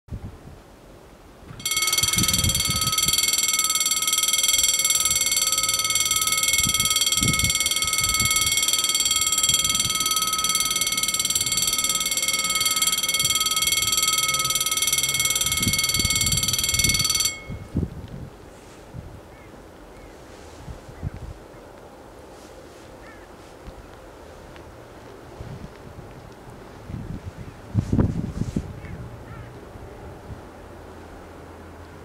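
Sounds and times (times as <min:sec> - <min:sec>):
level crossing warning bells ringing: 0:01.6 - 0:17.8.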